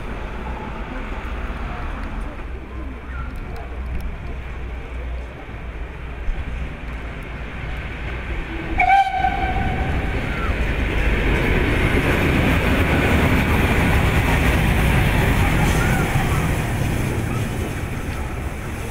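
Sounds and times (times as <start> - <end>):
locomotive passing: 0.0 - 18.9
steam locomotive whistle: 8.7 - 10.5.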